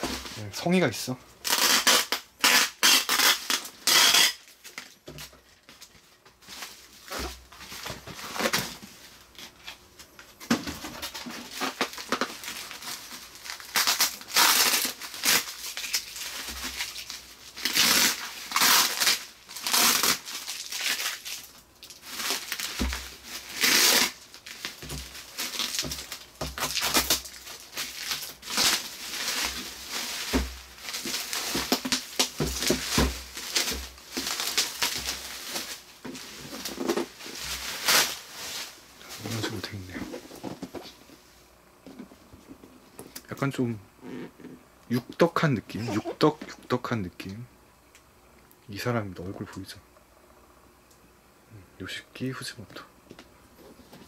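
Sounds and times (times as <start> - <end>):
bubble wrap crinkling: 0.0 - 41.1
packing tape peeling: 1.4 - 4.9, 11.0 - 35.8, 36.6 - 38.3.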